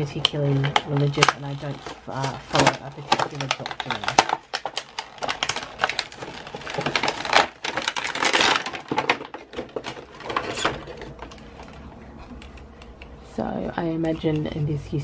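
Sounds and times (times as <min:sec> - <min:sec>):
plastic packaging crinkling: 0:00.6 - 0:12.7.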